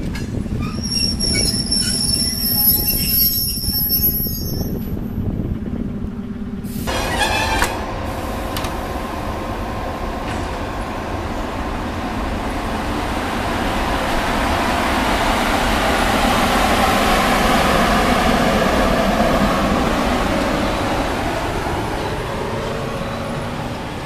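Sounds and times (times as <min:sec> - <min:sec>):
electric locomotive humming: 0:00.0 - 0:24.0.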